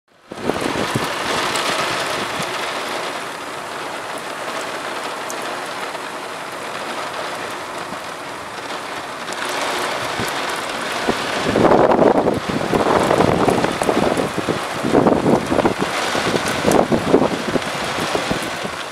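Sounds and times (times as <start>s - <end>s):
rain falling: 0.1s - 18.9s
gust of wind: 0.3s - 2.6s, 9.4s - 18.9s.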